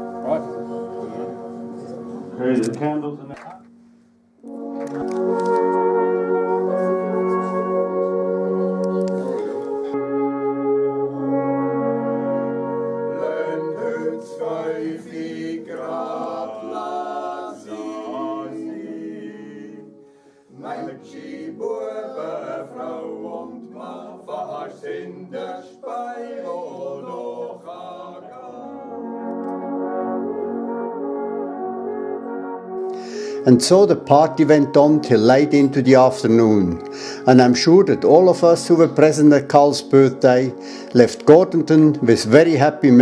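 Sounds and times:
men's choir singing chords: 0:00.0 - 0:02.7, 0:06.0 - 0:31.6.

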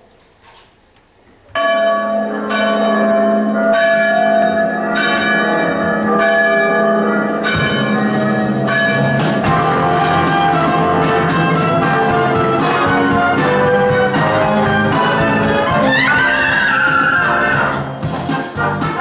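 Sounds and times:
music with ringing bell chimes: 0:01.6 - 0:15.2.

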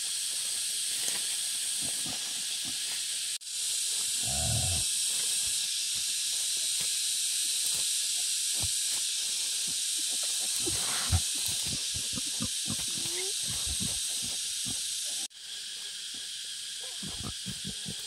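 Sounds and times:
steady high hiss: 0:00.0 - 0:18.0
wild boar grunt: 0:04.2 - 0:04.9, 0:10.1 - 0:14.8, 0:16.8 - 0:18.0.

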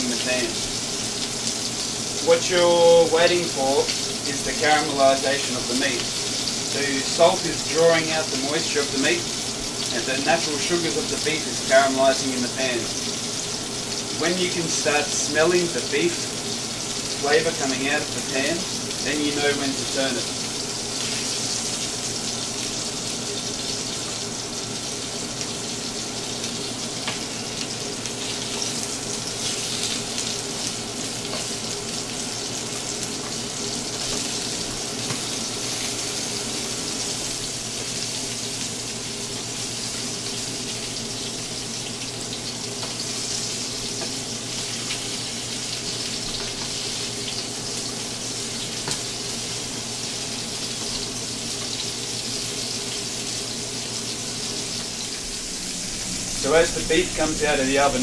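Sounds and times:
meat sizzling in a frying pan: 0:00.0 - 0:58.0.

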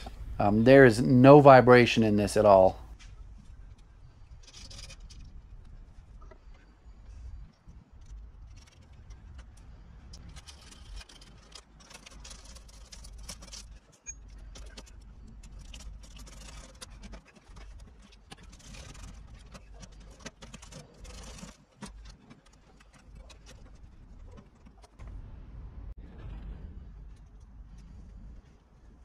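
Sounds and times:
low steady rumble: 0:00.0 - 0:29.0
metallic clicking and scraping: 0:02.9 - 0:25.3.

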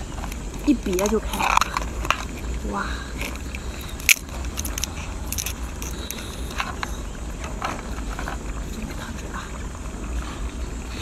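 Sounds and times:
shell crunching and crackling: 0:00.0 - 0:09.2
crab shell cracking: 0:00.2 - 0:08.6.

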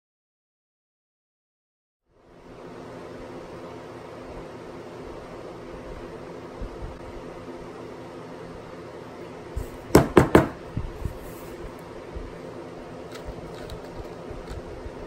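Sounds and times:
knocks on wooden shutter louver: 0:09.9 - 0:10.6.

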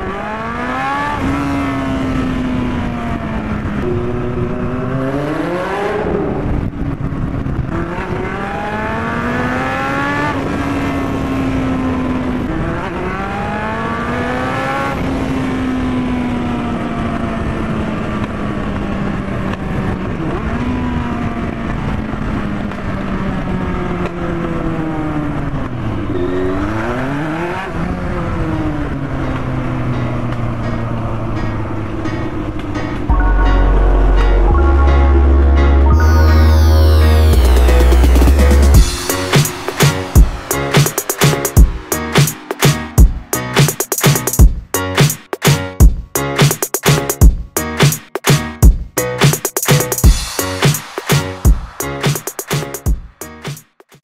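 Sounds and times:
motorcycle engine accelerating: 0:00.0 - 0:46.0
wind rushing: 0:38.4 - 0:43.6.

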